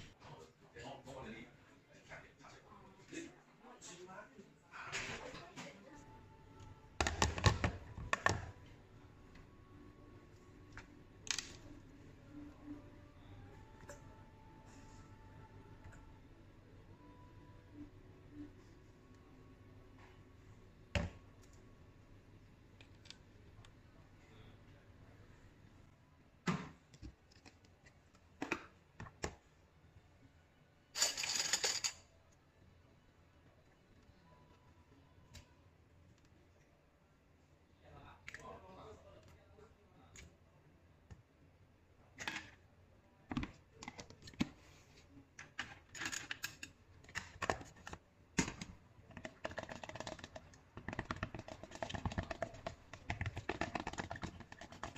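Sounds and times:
containers clicking and knocking: 7.0s - 8.5s, 45.5s - 54.9s.

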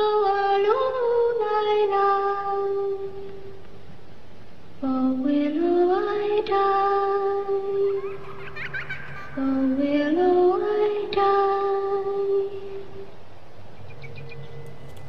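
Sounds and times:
woman singing slow melody: 0.0s - 3.6s, 4.8s - 8.3s, 9.4s - 13.2s.

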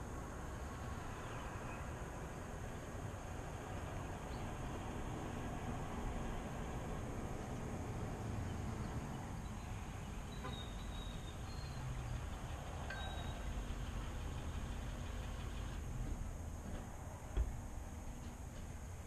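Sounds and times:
outdoor background rumble: 0.0s - 19.0s
faint high chirps: 12.8s - 13.6s.

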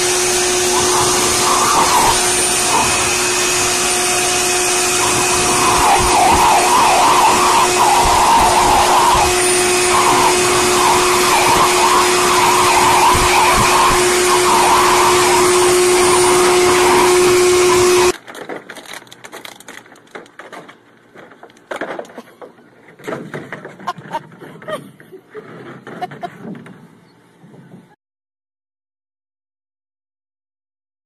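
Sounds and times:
electric motor whine: 0.0s - 18.2s.

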